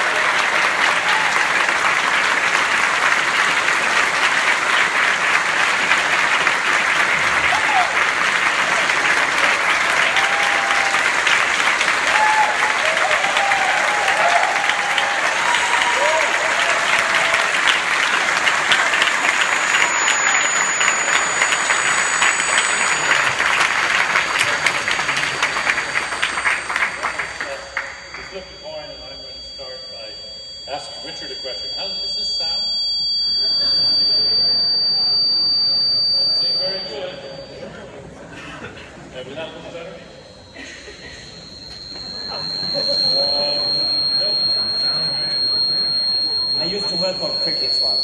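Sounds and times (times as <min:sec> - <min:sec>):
audience applauding: 0:00.0 - 0:28.8.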